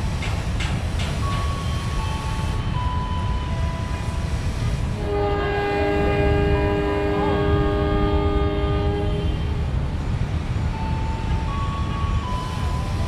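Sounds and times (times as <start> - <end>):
train low rumble: 0.0 - 13.0
train horn chord: 4.9 - 9.6.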